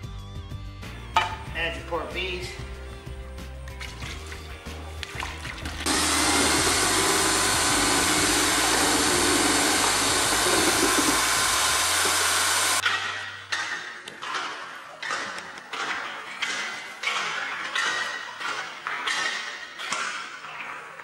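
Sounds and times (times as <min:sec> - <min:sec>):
electric drill running a mixer: 0:05.8 - 0:12.8.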